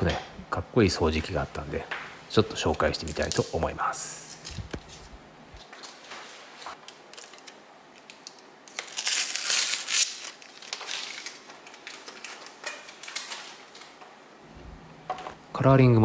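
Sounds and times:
crinkling handling noise: 4.2 - 14.2.

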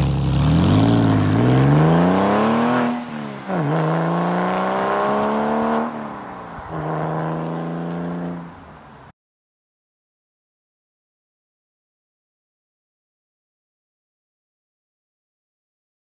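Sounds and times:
car engine accelerating: 0.0 - 8.9.

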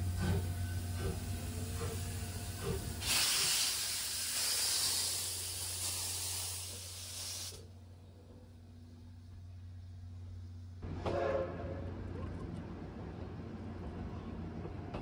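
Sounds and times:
steam locomotive venting steam: 0.0 - 7.7.

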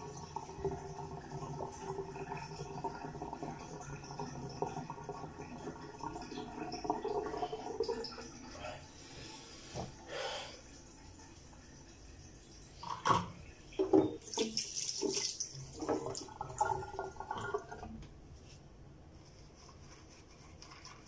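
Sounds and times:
tap water running into sink: 0.0 - 8.5, 11.0 - 18.1.

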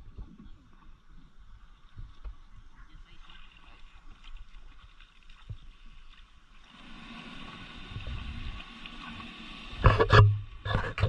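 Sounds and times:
small waves washing on sand: 3.0 - 9.9
wind rumbling on microphone: 6.9 - 11.0.

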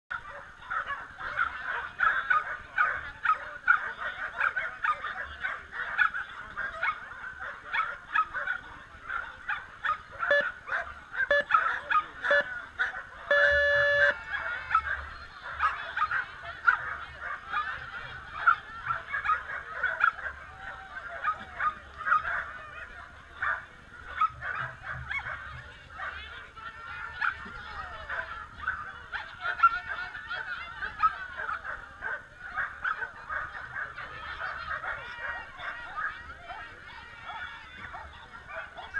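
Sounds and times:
dogs barking: 0.1 - 38.9
short steady tone: 13.3 - 14.1.

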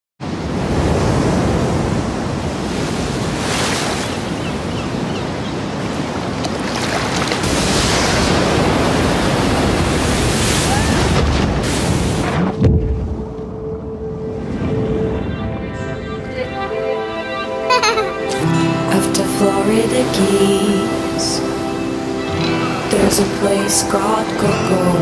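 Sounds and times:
wind: 0.2 - 18.9
waves breaking and washing: 0.2 - 25.0.

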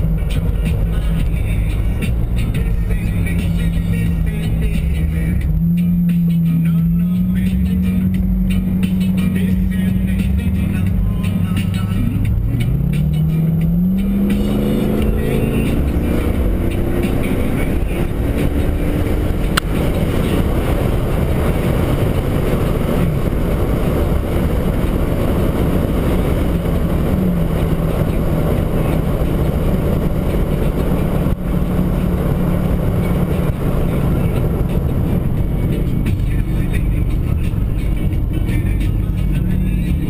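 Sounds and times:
car engine pulling hard: 0.0 - 40.0
exhaust drone: 0.0 - 40.0.

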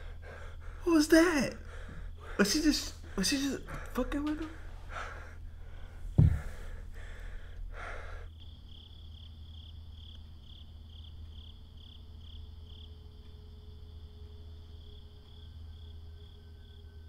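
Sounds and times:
crickets chirping: 0.0 - 17.0
steady low hum: 0.0 - 17.0.

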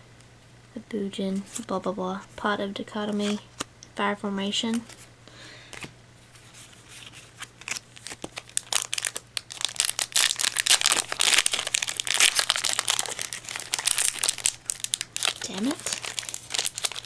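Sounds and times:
foil wrapper crinkling and tearing: 7.0 - 17.0.

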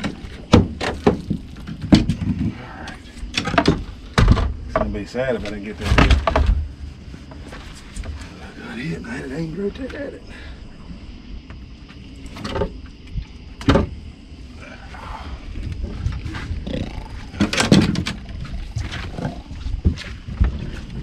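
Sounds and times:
knocks and bumps on boat deck: 0.0 - 2.6, 3.3 - 6.7.

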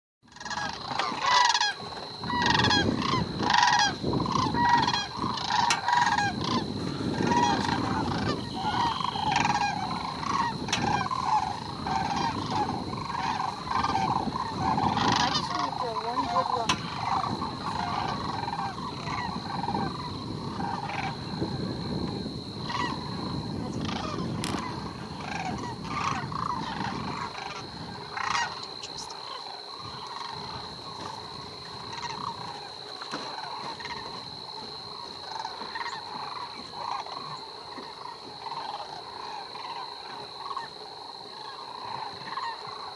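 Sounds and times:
cranes bugling: 0.2 - 42.9
steady high-pitched tone: 7.4 - 13.9.

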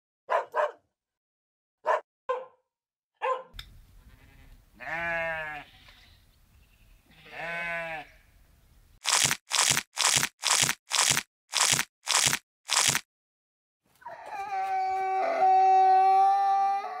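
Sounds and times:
dog barking: 0.3 - 0.9, 1.8 - 3.6
sheep bleating: 4.1 - 6.2, 7.1 - 8.2.

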